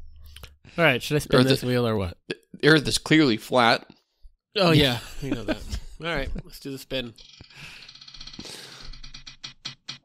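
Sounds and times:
spinning wheel ticking: 0:07.2 - 0:10.0.

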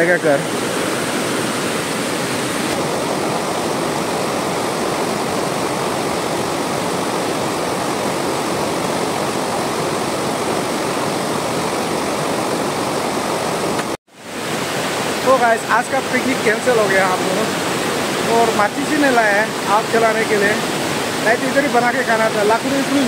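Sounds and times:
river rushing over rapids: 0:00.0 - 0:23.0.

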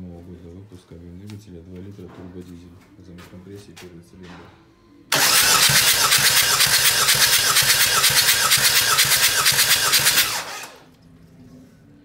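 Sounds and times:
starter cranking engine: 0:05.1 - 0:10.9.

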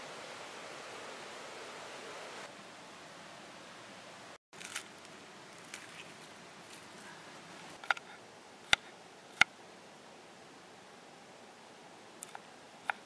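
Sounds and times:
faint steady hiss: 0:00.0 - 0:13.0
garlic skins rustling: 0:04.6 - 0:08.0.

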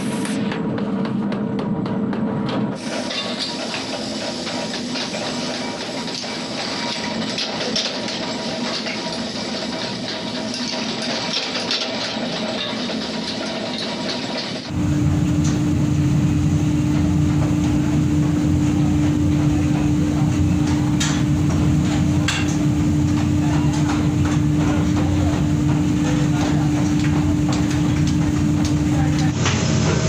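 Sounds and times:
machine hum over low rumble: 0:14.7 - 0:30.0.

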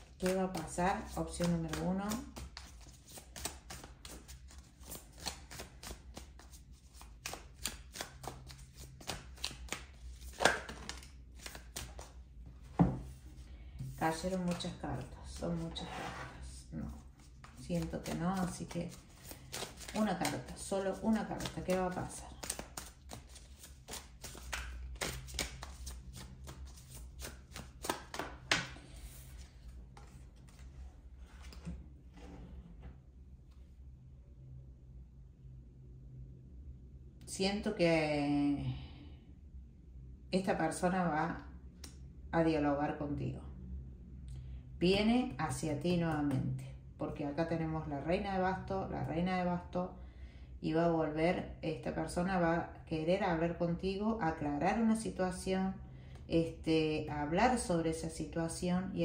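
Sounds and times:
cards shuffled by hand: 0:00.0 - 0:12.2, 0:16.9 - 0:30.7
cards slapping onto table: 0:09.0 - 0:12.0.

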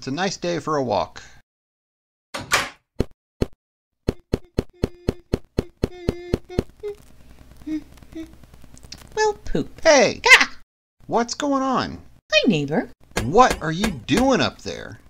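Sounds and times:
door clicking shut: 0:02.4 - 0:02.8.

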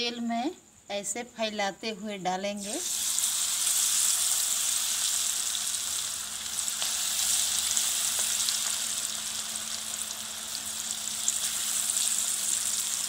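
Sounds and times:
batter deep-frying in oil: 0:02.6 - 0:13.0
oil popping and crackling: 0:02.8 - 0:13.0.

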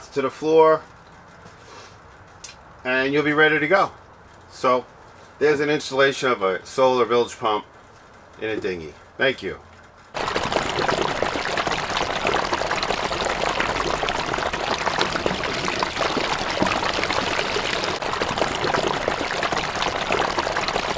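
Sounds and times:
water running: 0:10.2 - 0:20.9.

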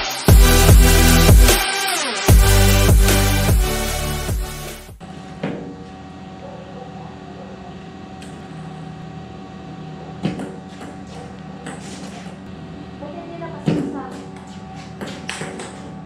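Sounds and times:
electronic intro music: 0:00.0 - 0:05.0
room hum: 0:05.0 - 0:16.0.

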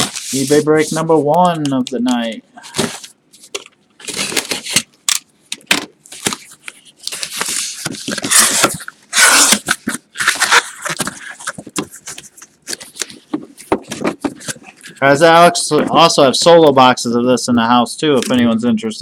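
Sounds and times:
cardboard tearing: 0:07.1 - 0:13.1
cardboard box slit with knife: 0:08.3 - 0:09.7.

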